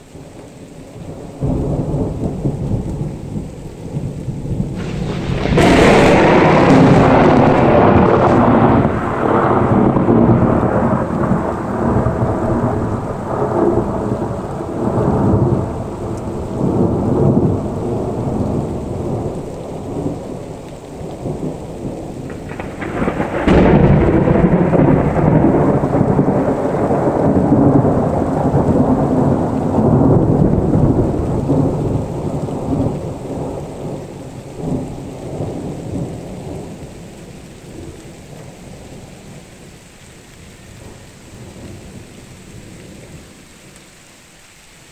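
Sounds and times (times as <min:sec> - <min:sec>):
rolling thunder rumble: 0:01.0 - 0:39.7
sharp thunder crack: 0:04.5 - 0:18.1, 0:22.2 - 0:34.0.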